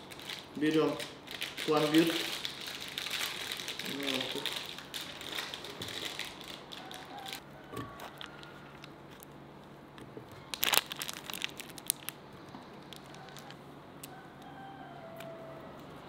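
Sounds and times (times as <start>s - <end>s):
paper and foil wrapper crinkling: 0.0s - 9.3s, 10.4s - 13.6s.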